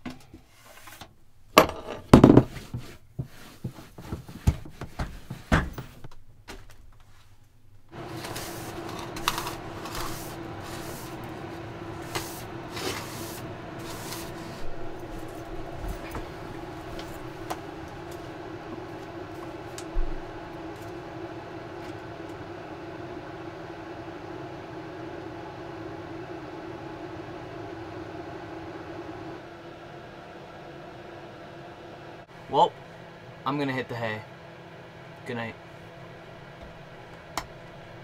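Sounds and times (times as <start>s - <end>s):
steady hum: 0.1s - 38.0s
hand brush sweeping floor: 0.4s - 1.0s, 2.4s - 6.0s, 7.0s - 21.0s
paper towel wiping cabinet: 2.4s - 6.0s, 7.9s - 20.8s.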